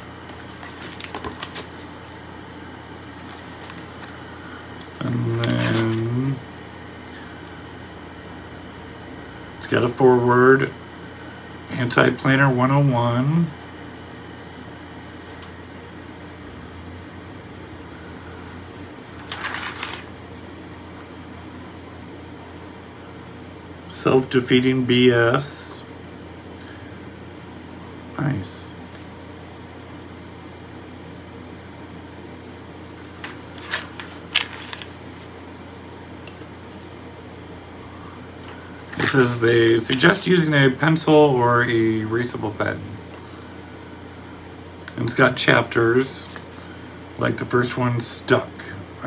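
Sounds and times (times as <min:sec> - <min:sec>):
low room hum: 0:00.0 - 0:49.0
book page turning: 0:00.2 - 0:02.1, 0:03.2 - 0:04.2, 0:04.8 - 0:06.2, 0:19.1 - 0:20.7, 0:33.0 - 0:35.4, 0:36.1 - 0:37.1, 0:38.4 - 0:40.3.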